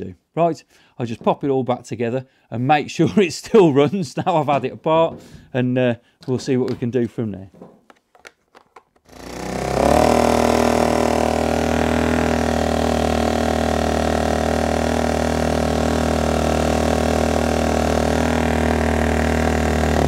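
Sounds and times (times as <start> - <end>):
generator engine running: 9.1 - 20.0.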